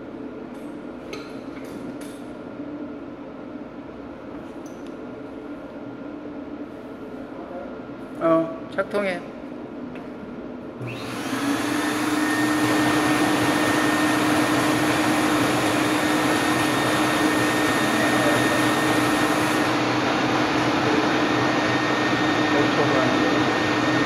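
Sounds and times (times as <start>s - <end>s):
machine motor humming: 10.8s - 24.0s.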